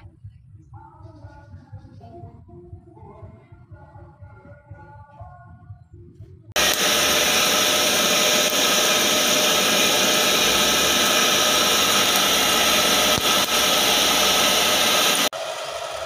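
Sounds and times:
air blower rushing hiss: 0:06.6 - 0:16.0.

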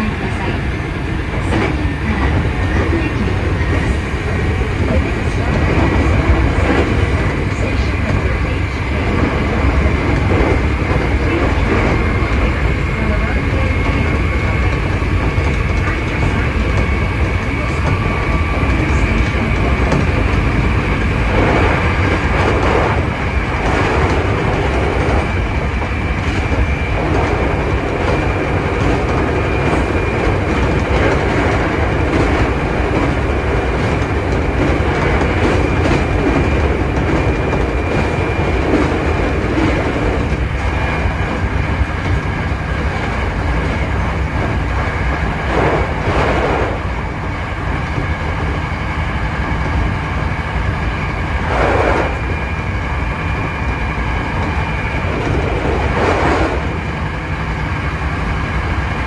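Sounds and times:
electric train rumbling: 0:00.0 - 0:59.0.

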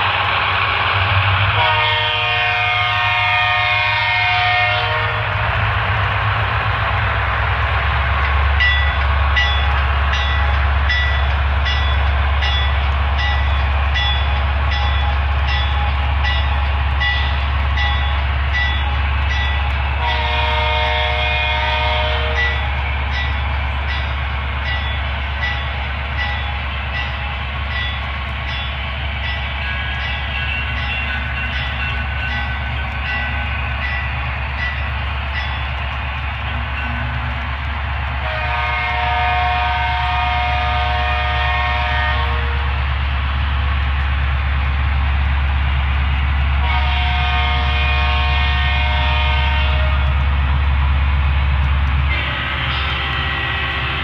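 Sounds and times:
diesel locomotive engine rumble: 0:00.0 - 0:54.0
locomotive air horn: 0:01.5 - 0:05.4, 0:19.9 - 0:22.8, 0:38.2 - 0:42.8, 0:46.6 - 0:50.2, 0:52.1 - 0:54.0.

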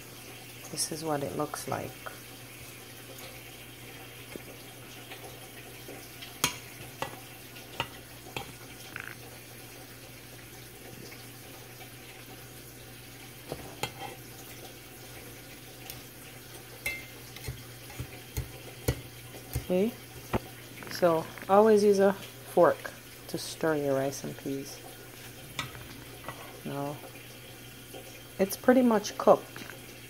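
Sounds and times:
fork stirring rice in pot: 0:06.4 - 0:08.6, 0:13.4 - 0:14.2, 0:16.8 - 0:20.4.

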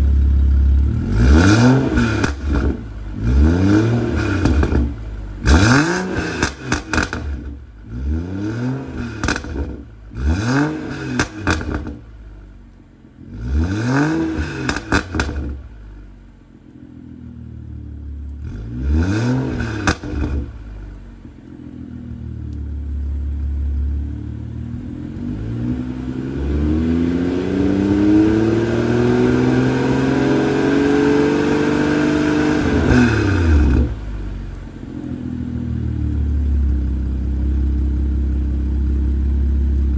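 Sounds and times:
car engine idling: 0:00.0 - 0:01.2, 0:02.0 - 0:08.1, 0:14.7 - 0:18.7, 0:19.8 - 0:25.4, 0:33.2 - 0:39.9
car engine revving: 0:00.0 - 0:12.1, 0:13.2 - 0:15.8, 0:18.0 - 0:39.9
exhaust crackles: 0:00.0 - 0:30.8, 0:31.7 - 0:39.9.

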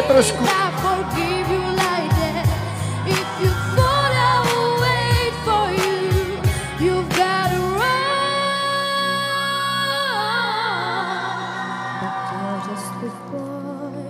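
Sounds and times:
backing track with drums and bass: 0:00.0 - 0:08.0
girl singing pop song: 0:00.0 - 0:14.0.

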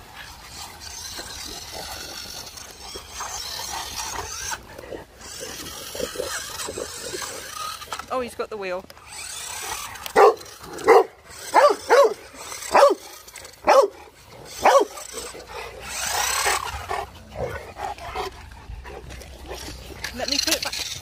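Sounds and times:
dog barking: 0:10.2 - 0:13.0, 0:13.6 - 0:14.0, 0:14.6 - 0:15.0.

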